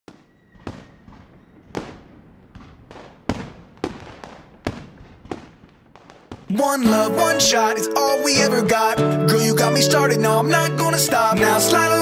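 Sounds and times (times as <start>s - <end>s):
fireworks bangs: 0.1s - 7.0s.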